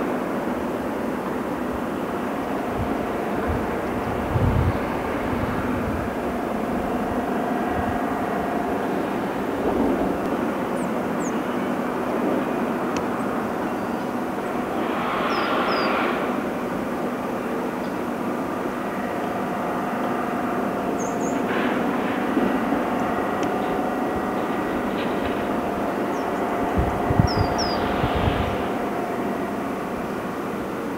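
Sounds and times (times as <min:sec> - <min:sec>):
heavy diesel engine running: 0:00.0 - 0:30.9.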